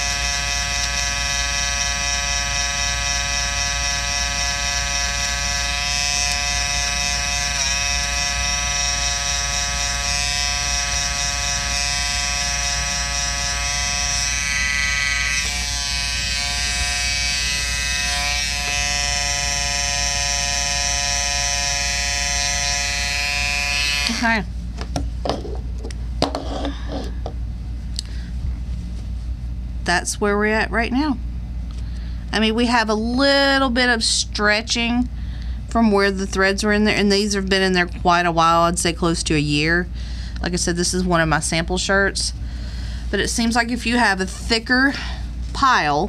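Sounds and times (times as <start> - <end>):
electric trimmer buzzing: 0.0 - 24.5.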